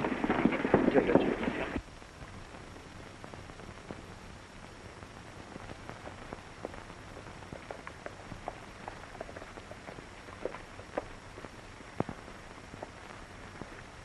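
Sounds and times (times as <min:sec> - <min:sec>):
horse hoofbeats: 0:00.0 - 0:01.8, 0:05.6 - 0:14.0
old film soundtrack hiss: 0:00.0 - 0:14.0.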